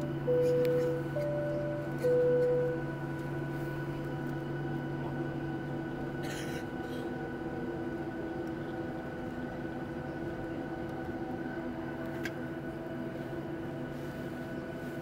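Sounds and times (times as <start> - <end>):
jet engines humming in cabin: 0.0 - 15.0.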